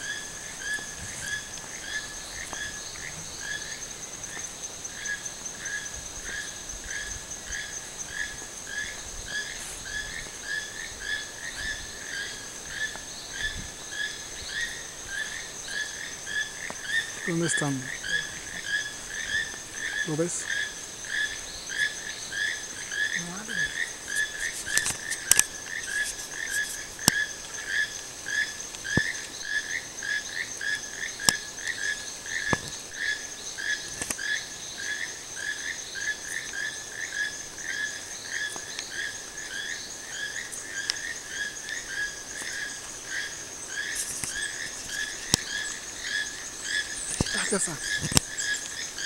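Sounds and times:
toucans calling: 0:37.7 - 0:49.0.

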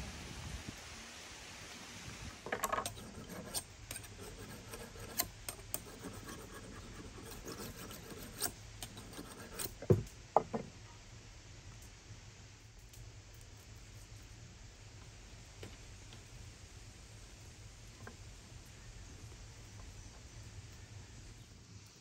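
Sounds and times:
knife scraping on ceramic: 0:02.6 - 0:09.8
knocks: 0:09.8 - 0:10.7.

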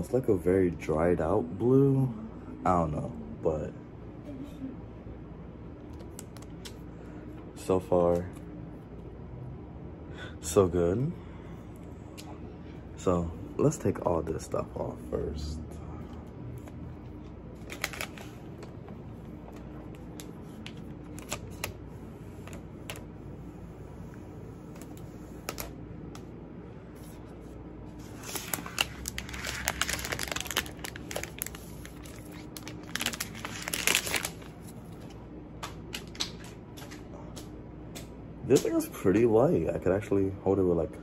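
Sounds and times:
paper wrap peeling and crinkling: 0:17.6 - 0:21.8, 0:27.9 - 0:35.1.

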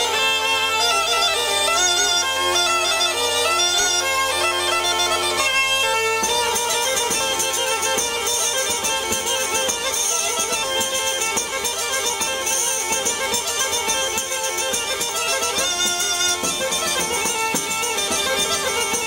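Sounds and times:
folk wind music over drone: 0:00.0 - 0:19.0
drumbeats: 0:05.4 - 0:19.0.

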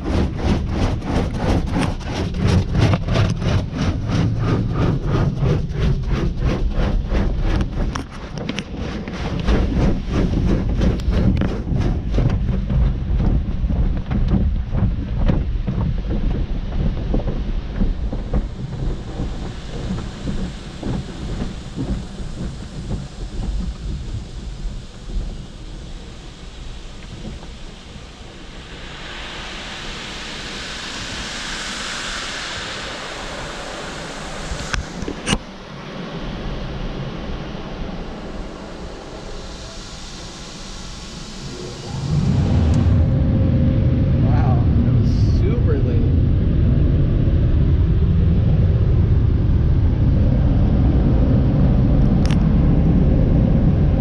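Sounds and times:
steady low rumble: 0:00.0 - 0:54.0.

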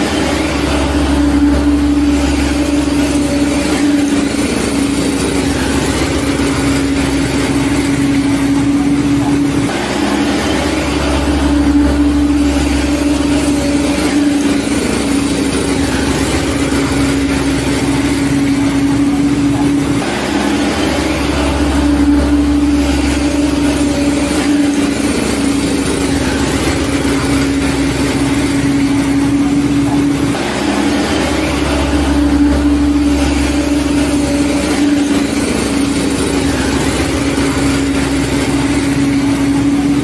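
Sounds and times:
vehicle engine running: 0:00.0 - 0:40.0.

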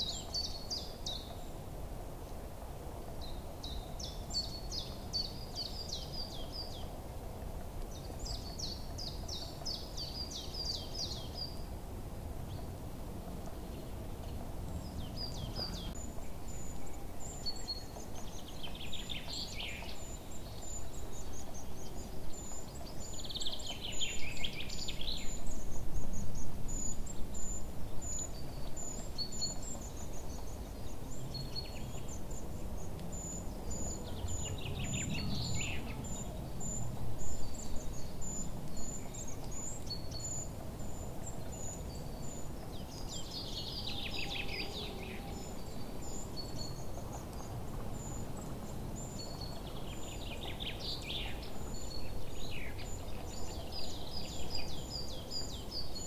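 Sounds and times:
birds chirping: 0:13.5 - 0:56.0.

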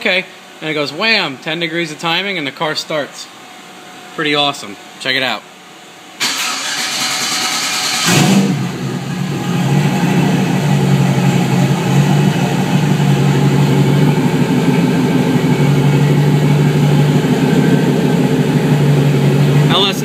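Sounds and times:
engine cranking on starter: 0:06.2 - 0:08.7
engine idling: 0:06.2 - 0:20.0.

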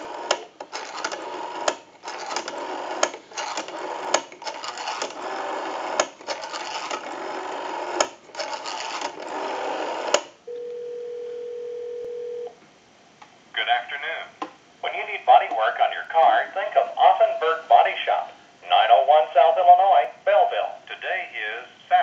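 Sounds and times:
rotary phone dial clicking: 0:00.0 - 0:10.3
telephone ringback tone: 0:08.6 - 0:12.6.

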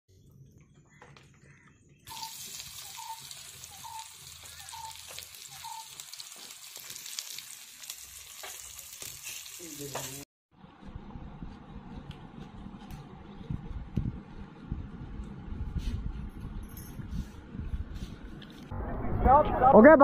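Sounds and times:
fish sizzling in hot oil: 0:02.1 - 0:10.2.

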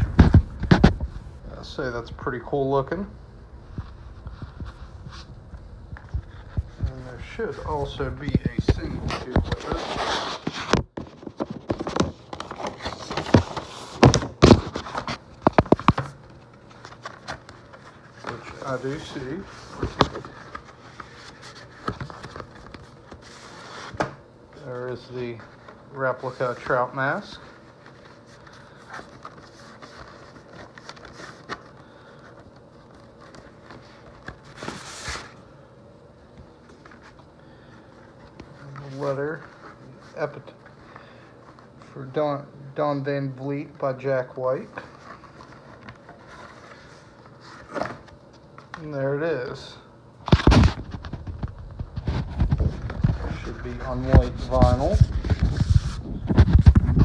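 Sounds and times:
cardboard packaging knocks and rustles: 0:00.0 - 0:01.1, 0:10.7 - 0:16.2
paper rustling scrape: 0:05.9 - 0:35.4, 0:44.7 - 0:48.2, 0:50.3 - 0:57.0.

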